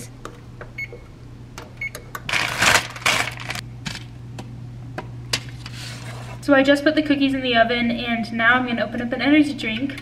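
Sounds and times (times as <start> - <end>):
steady low hum: 0.0 - 10.0
oven control panel beeping: 0.7 - 2.3
paper rustling: 2.3 - 3.6.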